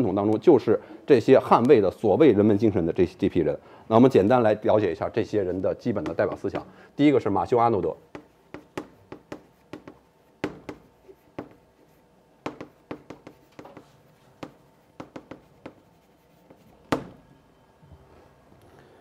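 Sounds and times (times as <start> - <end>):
chalk writing on blackboard: 8.1 - 17.1.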